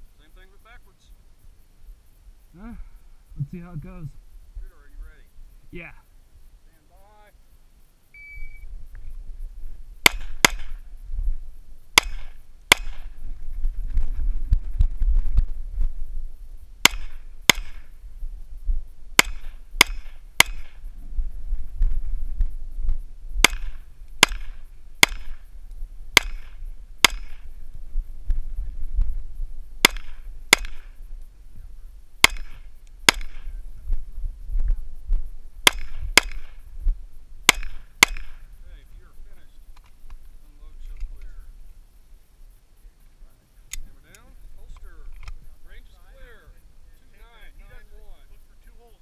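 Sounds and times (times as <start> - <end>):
pistol shots echoing: 10.0 - 10.8, 12.0 - 13.1, 16.8 - 17.9, 19.2 - 20.8, 23.4 - 25.4, 26.2 - 27.4, 29.8 - 30.9, 32.2 - 33.5, 35.7 - 36.6, 37.5 - 38.4.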